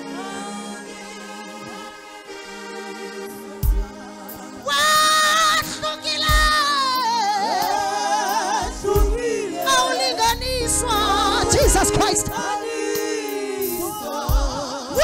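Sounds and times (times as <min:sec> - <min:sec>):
woman singing: 0:04.6 - 0:15.0
sustained keyboard chords: 0:10.3 - 0:14.6.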